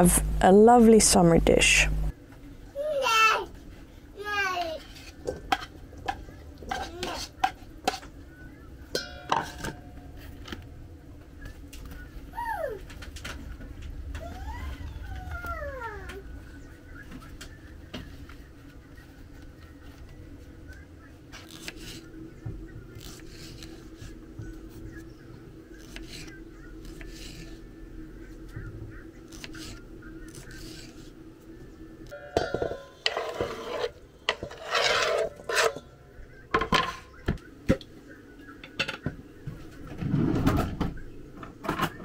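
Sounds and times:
steady low hum: 0.0s - 42.0s
dishes scraping and clinking: 4.8s - 8.2s, 8.9s - 10.6s, 32.1s - 37.2s
dishes knocking and clattering: 32.2s - 33.7s, 36.5s - 37.8s.

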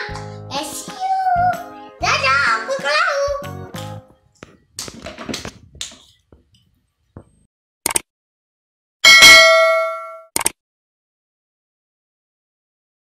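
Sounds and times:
notification bell ding: 9.0s - 10.3s.

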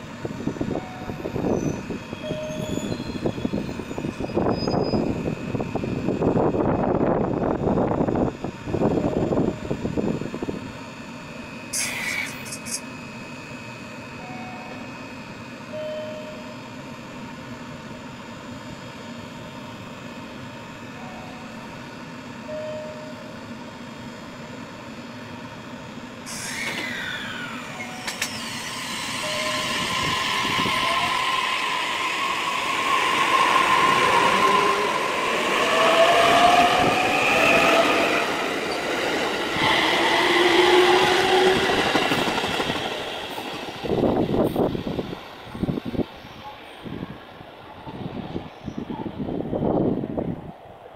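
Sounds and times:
train wheels rumbling on rails: 26.3s - 50.6s.

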